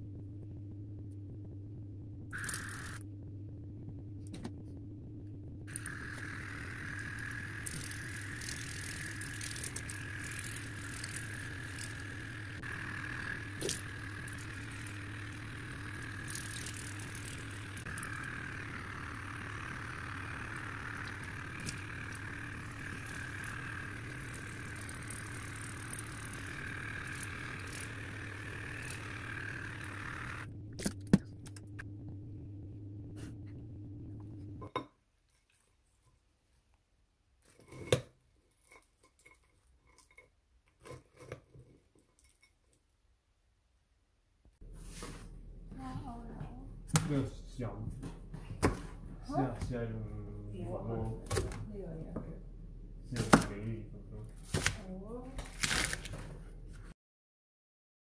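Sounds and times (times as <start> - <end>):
water flosser motor whine: 2.2 - 4.6, 5.4 - 34.7, 45.2 - 53.8.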